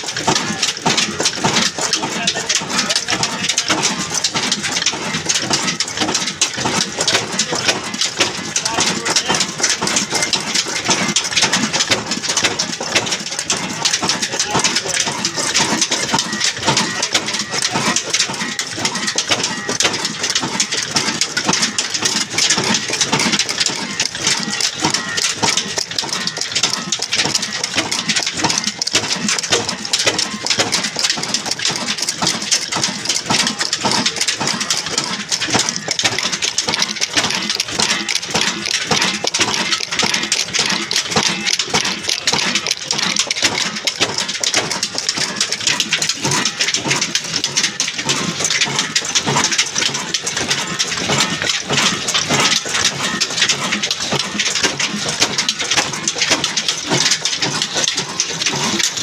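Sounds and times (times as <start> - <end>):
diesel engine clattering: 0.0 - 59.0.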